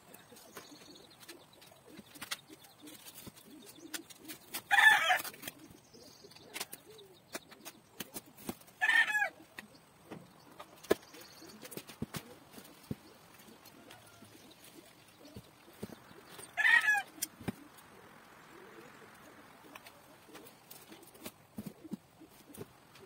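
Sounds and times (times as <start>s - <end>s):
chicken calling: 12.4s - 20.5s.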